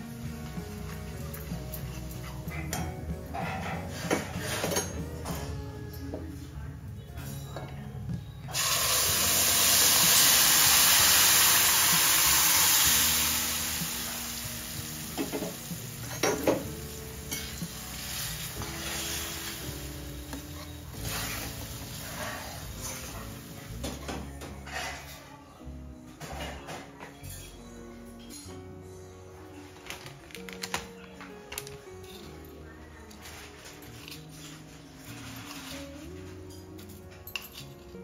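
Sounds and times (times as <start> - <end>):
paste sizzling in hot oil: 8.6 - 16.1.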